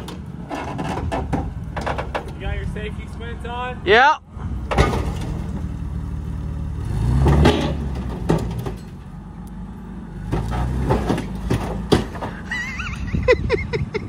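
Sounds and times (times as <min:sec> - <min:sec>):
forklift engine revving: 0:03.0 - 0:13.3
sharp cracks from truck cab: 0:04.7 - 0:05.5, 0:07.2 - 0:08.9, 0:10.3 - 0:12.4.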